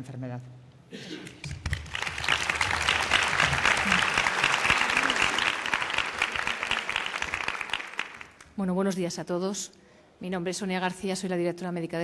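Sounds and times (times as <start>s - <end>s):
audience applauding: 1.4s - 8.4s.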